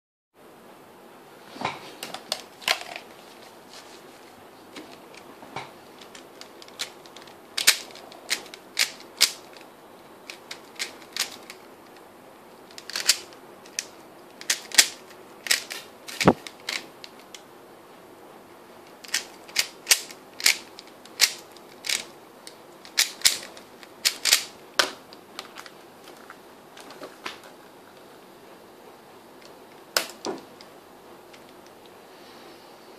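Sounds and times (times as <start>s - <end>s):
puzzle cube clicking: 6.0s - 9.6s, 10.3s - 11.6s, 12.7s - 16.8s, 19.1s - 24.5s.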